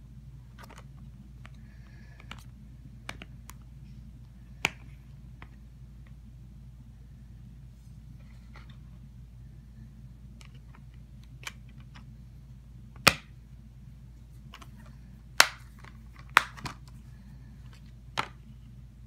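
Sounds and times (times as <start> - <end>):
plastic case snapping: 13.0 - 13.3, 15.4 - 16.9.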